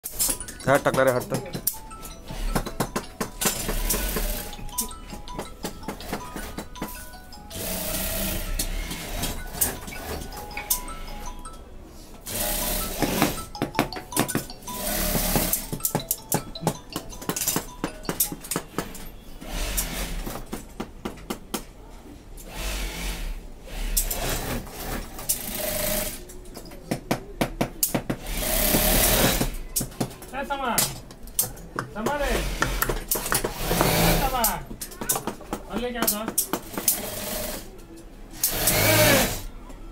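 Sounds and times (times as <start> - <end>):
industrial sewing machine running: 7.6 - 10.1, 12.3 - 13.4, 22.5 - 26.2, 28.2 - 29.5, 33.5 - 34.4, 36.8 - 37.7, 38.4 - 39.4.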